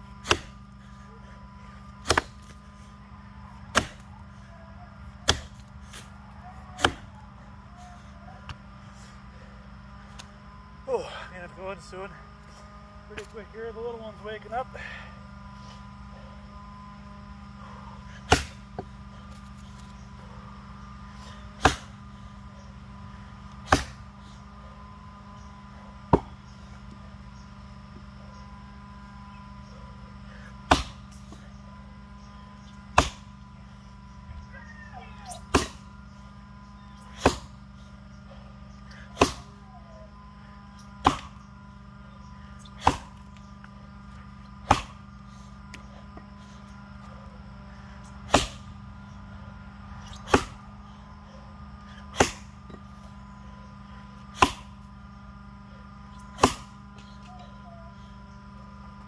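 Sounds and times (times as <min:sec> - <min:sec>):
axe chopping into log: 0:00.2 - 0:00.6, 0:02.0 - 0:02.6, 0:03.7 - 0:04.0, 0:05.2 - 0:06.1, 0:06.8 - 0:07.1, 0:18.3 - 0:18.6, 0:21.6 - 0:21.9, 0:23.7 - 0:24.0, 0:30.7 - 0:31.0, 0:32.9 - 0:33.3, 0:35.5 - 0:35.8, 0:37.1 - 0:37.5, 0:39.2 - 0:39.5, 0:41.0 - 0:41.4, 0:42.8 - 0:43.2, 0:44.6 - 0:45.0, 0:48.3 - 0:48.7, 0:50.2 - 0:50.6, 0:52.1 - 0:52.5, 0:54.4 - 0:54.7, 0:56.4 - 0:56.7.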